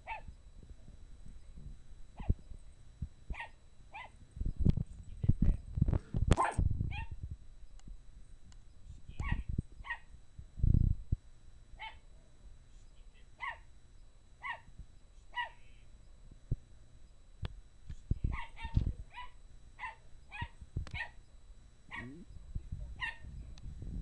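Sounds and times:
small dog barking: 0.0s - 0.3s, 2.2s - 2.4s, 3.3s - 4.2s, 6.4s - 7.2s, 9.2s - 10.1s, 11.8s - 12.0s, 13.4s - 13.7s, 14.4s - 14.7s, 15.3s - 15.6s, 18.3s - 21.2s, 21.9s - 22.2s, 23.0s - 23.3s.

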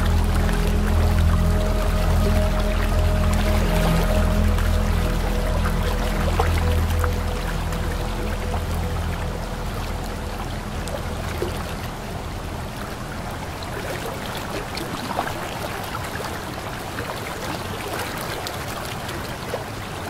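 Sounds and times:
waterfall rushing: 0.0s - 14.7s.

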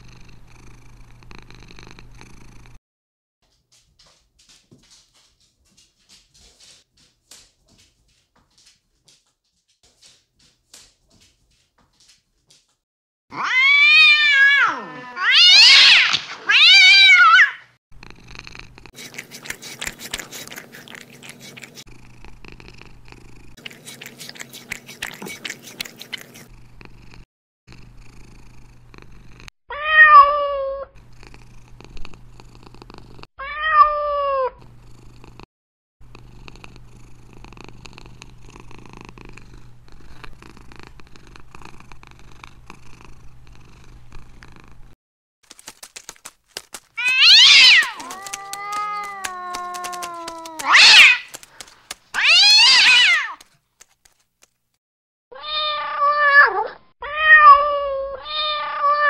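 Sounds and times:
cat purring: 0.0s - 2.8s, 18.0s - 29.5s, 31.0s - 33.3s, 34.8s - 35.4s, 36.0s - 45.0s, 47.8s - 52.0s
cat meowing: 13.3s - 17.6s, 29.7s - 30.9s, 33.4s - 34.6s, 47.0s - 51.4s, 52.2s - 53.4s, 55.3s - 59.0s.

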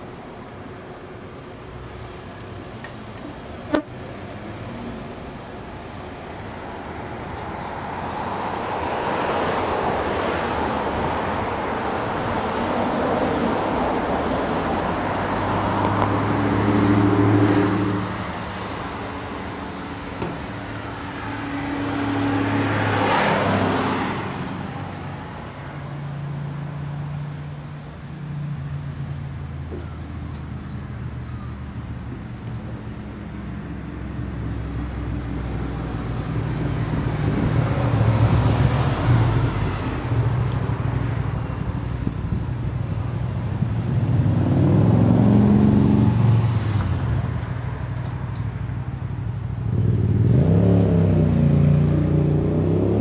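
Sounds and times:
road traffic passing: 0.0s - 53.0s.

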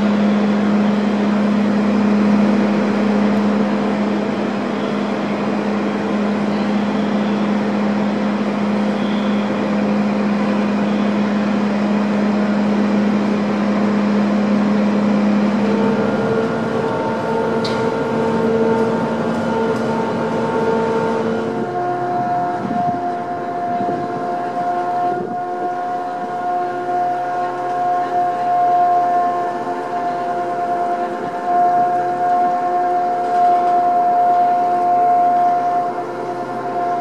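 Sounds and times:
ferry machinery drone: 0.0s - 37.0s
pulsing multi-note tone: 0.0s - 37.0s.

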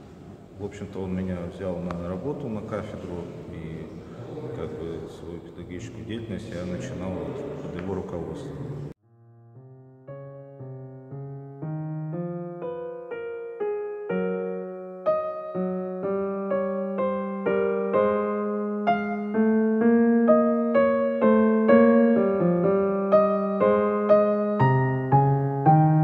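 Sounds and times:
gentle piano music: 7.2s - 26.0s.

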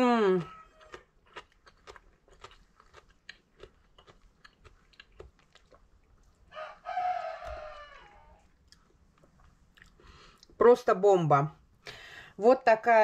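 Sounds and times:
crisp vegetables being chewed: 0.0s - 6.5s, 8.4s - 10.6s.

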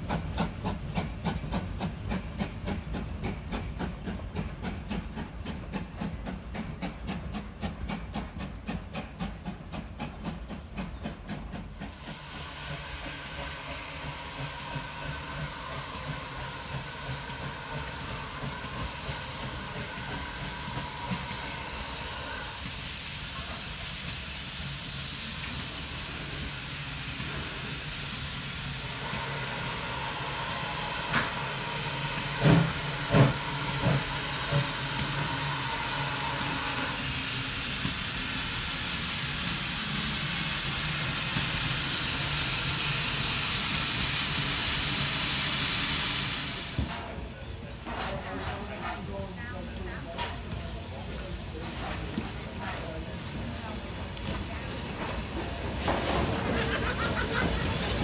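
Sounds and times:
steam hissing: 0.0s - 47.1s, 50.4s - 58.0s
steam locomotive chuffing: 0.0s - 58.0s.

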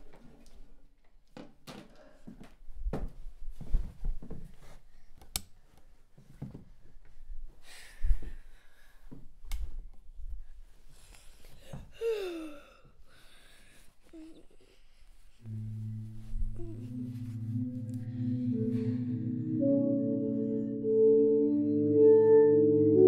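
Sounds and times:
soft knocks and rustles: 1.4s - 4.9s, 5.6s - 7.3s.

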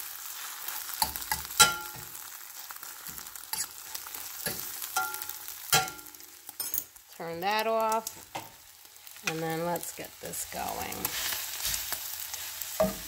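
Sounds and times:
eggs sizzling in butter: 0.0s - 13.0s
metal spoon scraping a pan: 0.7s - 2.2s, 3.0s - 6.9s, 10.5s - 13.0s
spoon knocking against pan: 1.0s - 2.1s, 4.4s - 6.2s.

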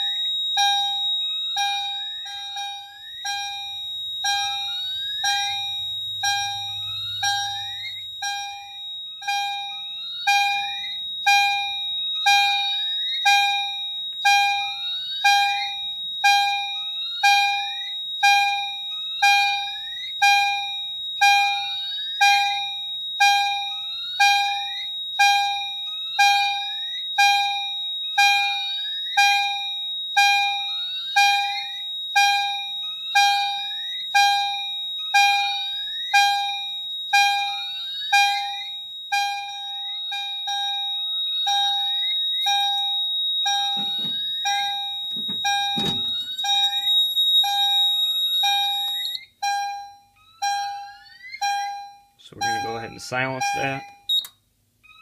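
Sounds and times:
fire alarm chime striking: 0.0s - 55.0s
high-pitched piezo tone: 0.0s - 55.0s
knocks: 43.7s - 44.3s, 45.1s - 46.4s.

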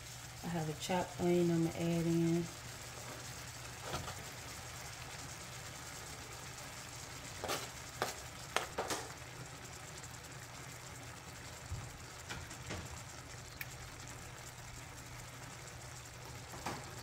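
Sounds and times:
meat sizzling in a skillet: 0.0s - 17.0s
light knocks in a pan: 7.4s - 9.2s.

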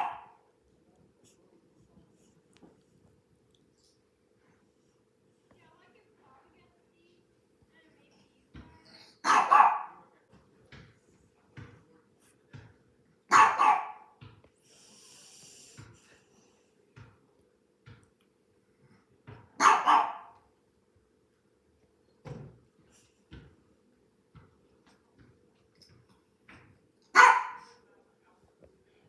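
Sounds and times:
small dog barking: 0.0s - 0.4s, 9.2s - 10.0s, 13.3s - 14.2s, 19.6s - 20.4s, 27.1s - 27.8s.

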